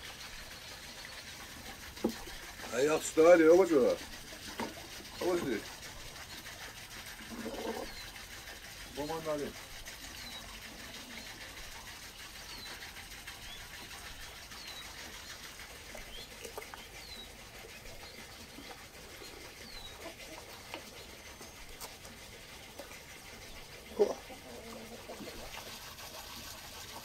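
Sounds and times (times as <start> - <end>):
small bird chirping: 16.1 - 17.3.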